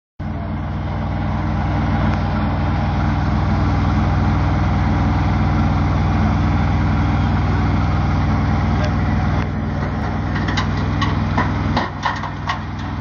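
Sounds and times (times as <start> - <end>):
tractor diesel engine idling: 0.2 - 13.0.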